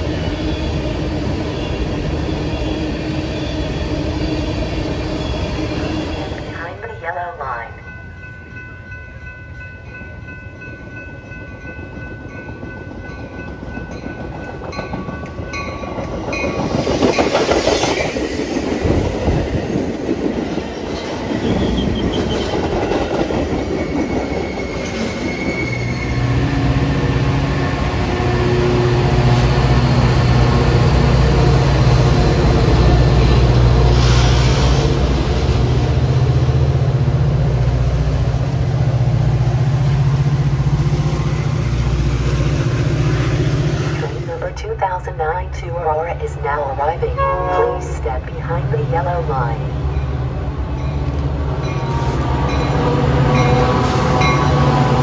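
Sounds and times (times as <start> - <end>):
diesel locomotive engine drone: 0.0 - 55.0
train wheels rushing on rails: 10.8 - 44.4, 49.8 - 55.0
train horn: 47.2 - 48.0.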